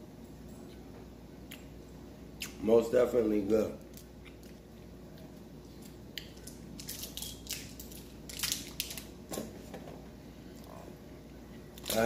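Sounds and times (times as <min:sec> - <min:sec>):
chocolate wrapper crinkling: 0:06.4 - 0:09.1.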